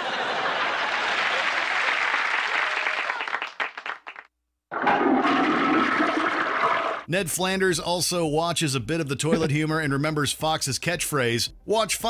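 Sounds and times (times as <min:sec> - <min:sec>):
studio audience applause: 0:00.0 - 0:04.3
toilet flushing: 0:04.7 - 0:07.1.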